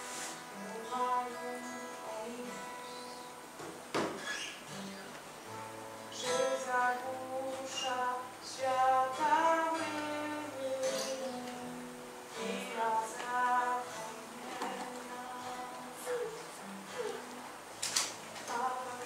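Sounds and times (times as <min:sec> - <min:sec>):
acoustic guitar strumming: 0:00.0 - 0:19.0
person singing long notes: 0:00.5 - 0:03.4, 0:06.1 - 0:17.6, 0:18.4 - 0:19.0.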